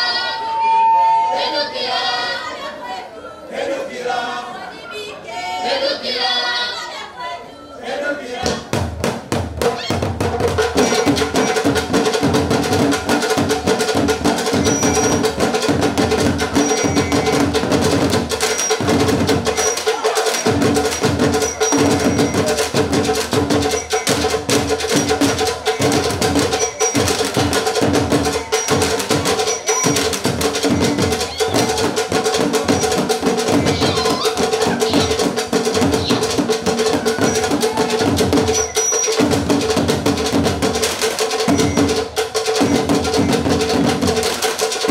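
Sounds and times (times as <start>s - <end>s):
steady held tone: 0.0s - 2.5s
wooden drums fast rhythm: 8.4s - 44.9s.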